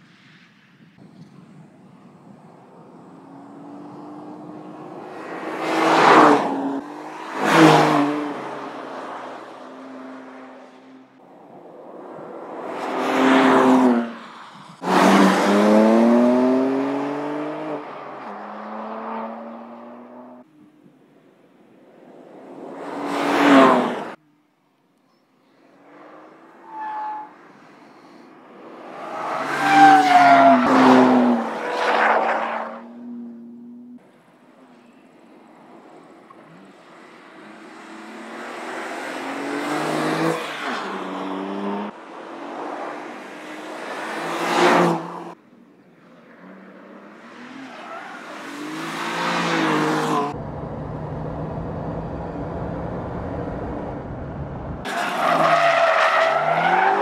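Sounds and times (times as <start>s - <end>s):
car engine revving through gears: 14.8s - 20.4s, 37.9s - 40.5s, 46.6s - 57.0s.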